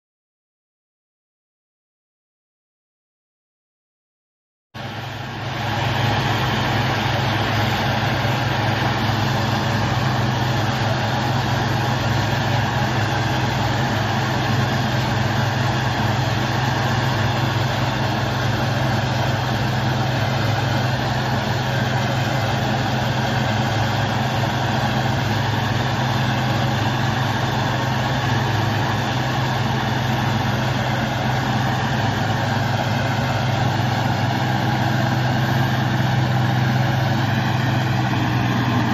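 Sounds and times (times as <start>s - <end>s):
tractor diesel engine humming: 4.8s - 38.9s.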